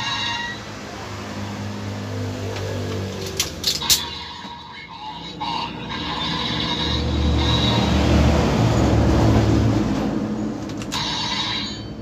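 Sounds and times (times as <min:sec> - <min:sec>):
electronic toy sound effects: 0:00.0 - 0:00.7, 0:03.8 - 0:07.9
loud low drone: 0:05.2 - 0:10.4.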